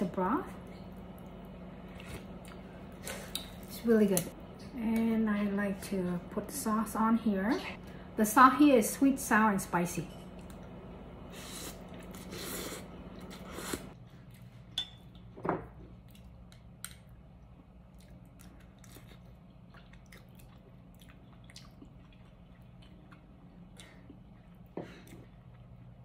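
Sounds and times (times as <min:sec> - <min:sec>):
person slurping noodles: 0:11.3 - 0:14.0
quiet chewing: 0:16.0 - 0:26.0.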